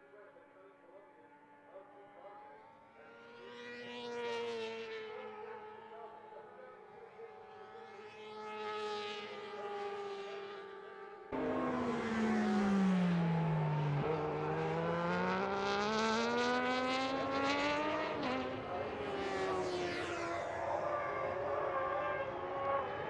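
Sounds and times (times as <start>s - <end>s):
racing motorcycle engine: 7.8s - 23.0s.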